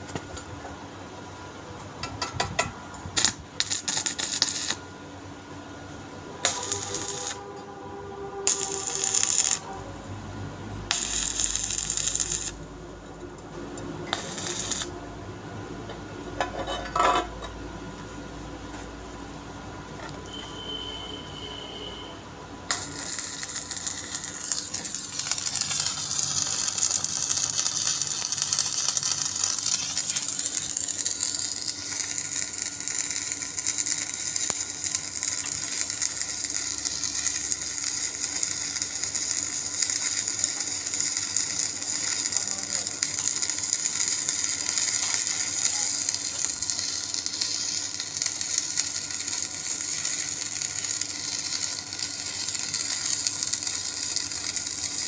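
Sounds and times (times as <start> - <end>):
welding arc crackling: 3.0 - 4.9, 6.4 - 7.7, 8.4 - 15.2, 22.6 - 55.0.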